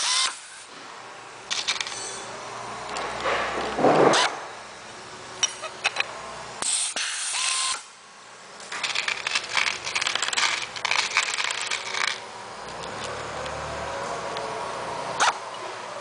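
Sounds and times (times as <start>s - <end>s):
pneumatic tool rapid clicking: 0.0s - 0.6s, 6.6s - 7.9s.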